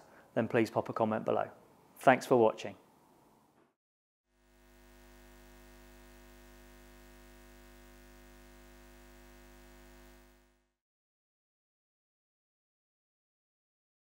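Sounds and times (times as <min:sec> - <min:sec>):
faint electrical hum: 0:04.4 - 0:10.7.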